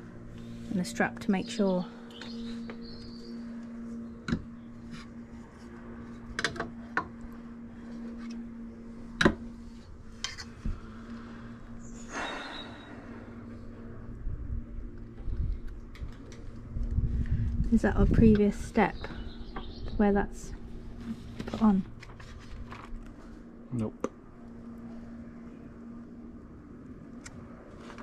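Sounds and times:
faint steady hum: 0.0s - 28.0s
paper booklet rustling: 21.6s - 23.2s.

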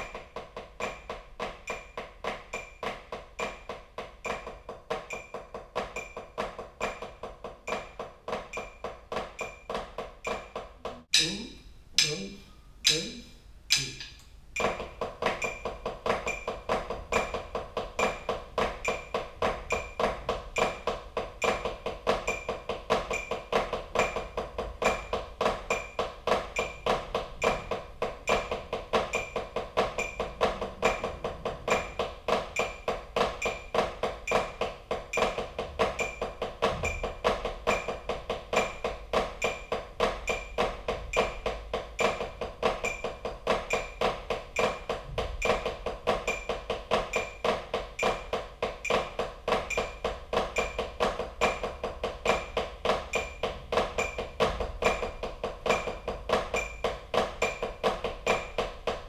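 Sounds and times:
drumsticks on a practice pad: 0.0s - 59.0s
bright click: 11.1s - 14.4s.

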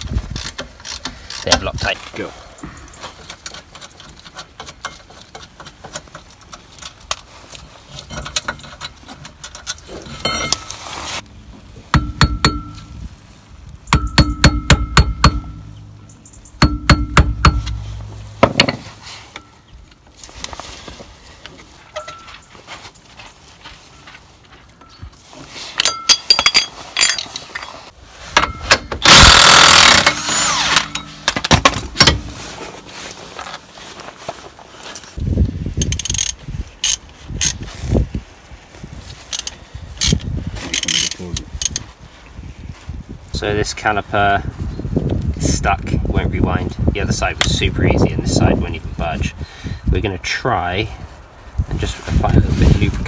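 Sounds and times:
tools and metal parts clinking: 0.3s - 1.9s, 2.9s - 10.8s, 14.0s - 19.7s, 21.9s - 23.1s, 24.7s - 32.4s, 35.8s - 37.6s
impact wrench hammering: 11.9s - 12.8s, 13.9s - 15.6s, 16.6s - 17.8s, 28.4s - 32.2s.

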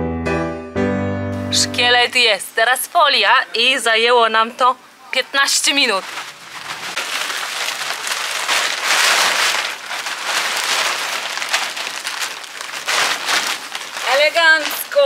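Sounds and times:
plastic cover rustling and crinkling: 5.2s - 15.0s.

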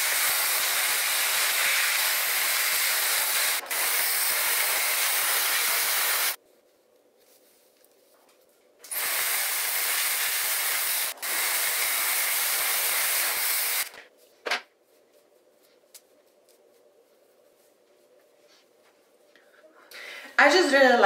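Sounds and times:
hair dryer blowing: 0.0s - 6.4s.

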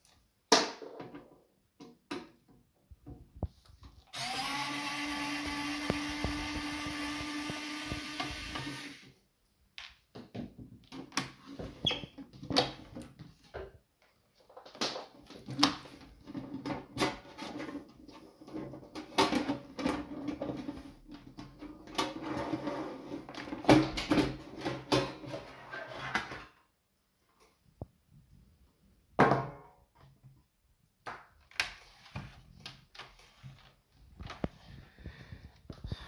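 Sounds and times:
electric screwdriver whirring: 4.1s - 9.1s.

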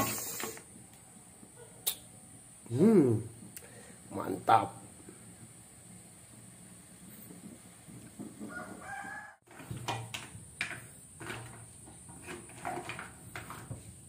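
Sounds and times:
clam shells clattering in metal pot: 9.5s - 13.8s.

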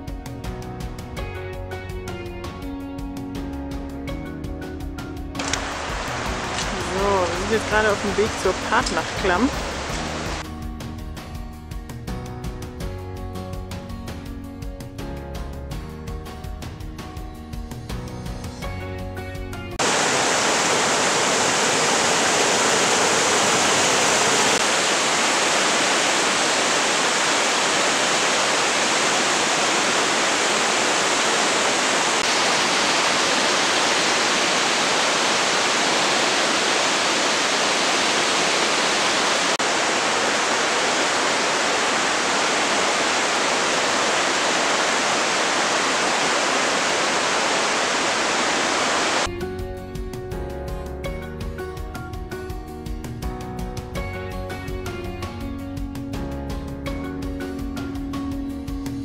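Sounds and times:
river rushing white water: 5.4s - 10.4s, 19.8s - 49.3s.

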